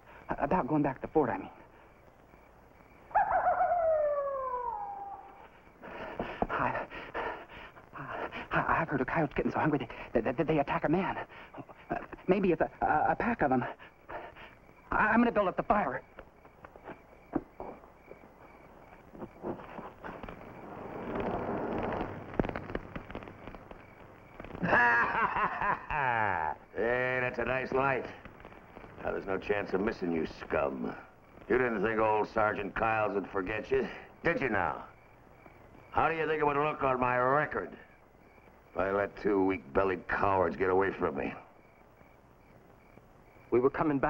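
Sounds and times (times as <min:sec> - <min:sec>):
campfire crackling and popping: 0:00.0 - 0:03.1, 0:05.4 - 0:36.0, 0:37.8 - 0:43.6
coyote howling: 0:03.0 - 0:05.8.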